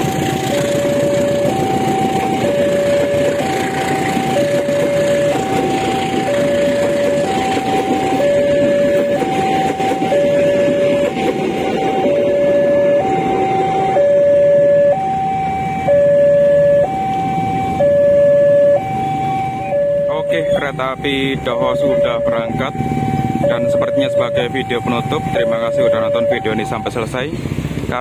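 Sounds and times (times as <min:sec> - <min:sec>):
level-crossing two-tone alarm: 0:00.0 - 0:27.2
passenger train rumbling past: 0:00.0 - 0:28.0.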